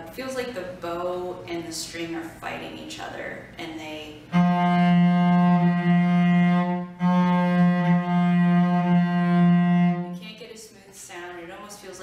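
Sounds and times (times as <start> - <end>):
cello bowed low note: 4.2 - 10.2.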